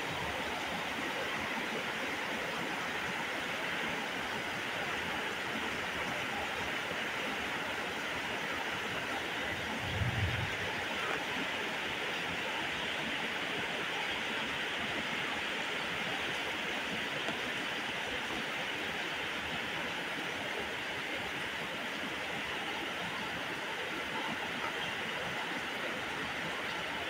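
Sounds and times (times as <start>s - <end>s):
heavy rain pouring: 9.0s - 12.9s.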